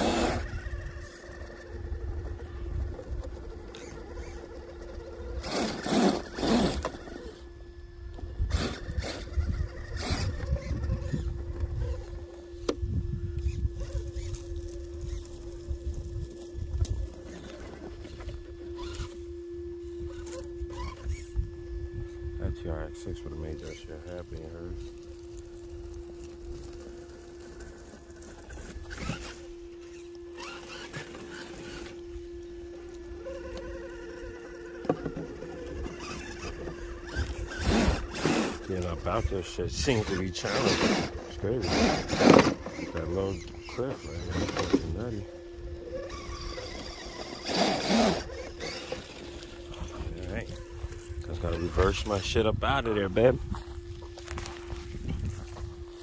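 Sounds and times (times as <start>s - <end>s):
electric motor whine: 0.0s - 56.0s
rustling over dirt and weeds: 23.6s - 56.0s.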